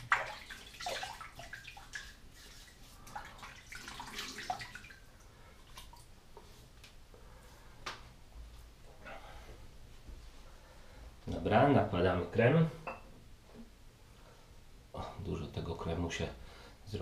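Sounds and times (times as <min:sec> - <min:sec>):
water splashing in a sink: 0:00.0 - 0:06.1.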